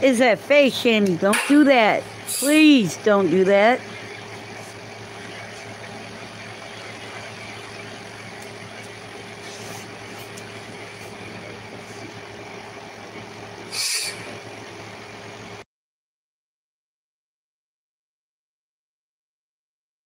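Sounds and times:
background hum with low tones: 0:00.0 - 0:15.6
short burst of hiss: 0:13.7 - 0:14.3.

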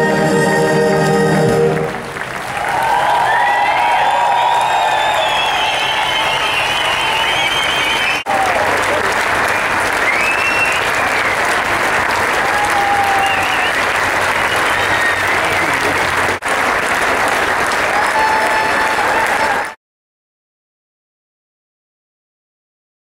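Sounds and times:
crowd applauding: 0:01.4 - 0:19.8
whistles and shouts: 0:03.1 - 0:08.3, 0:10.0 - 0:11.5, 0:12.8 - 0:16.0.

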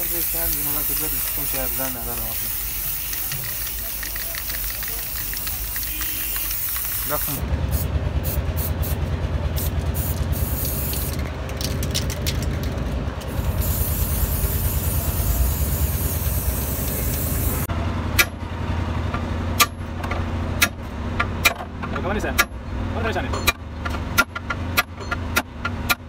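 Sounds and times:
spray paint can hissing: 0:00.0 - 0:09.0, 0:09.6 - 0:17.7.

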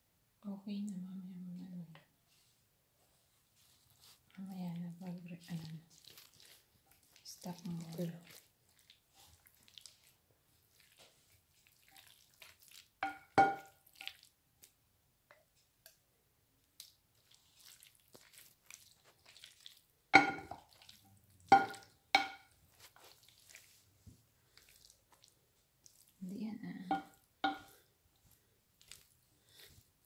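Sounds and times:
squelching of stirred pasta: 0:02.1 - 0:30.0
wooden spoon knocking glass bowl: 0:13.0 - 0:13.7, 0:20.2 - 0:20.6, 0:21.5 - 0:22.5, 0:26.8 - 0:27.8.

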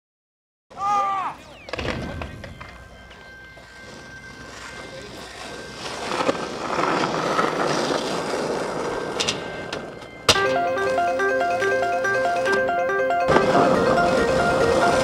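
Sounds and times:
skateboard wheels rolling on pavement: 0:01.5 - 0:15.0.

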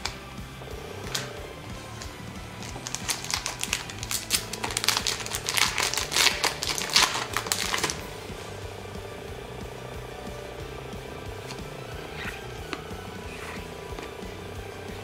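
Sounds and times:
foil wrapper crinkling and tearing: 0:02.6 - 0:08.0.

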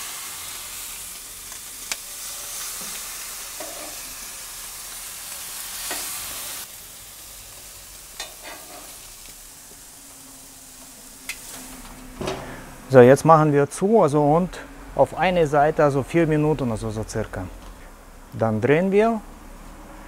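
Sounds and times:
burger patties sizzling on grill: 0:00.0 - 0:12.7.

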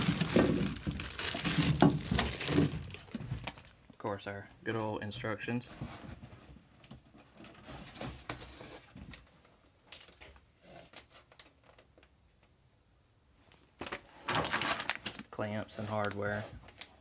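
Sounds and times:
plastic bag crinkling: 0:00.0 - 0:03.8, 0:14.3 - 0:16.2.

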